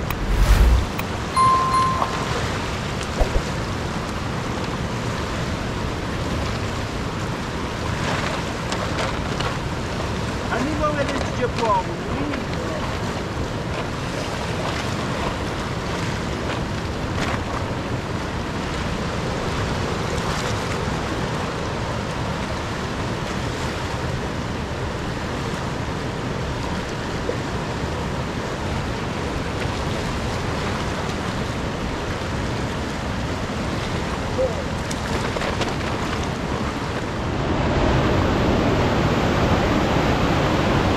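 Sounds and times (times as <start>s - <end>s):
river water rushing: 0.0s - 10.5s, 35.9s - 40.9s.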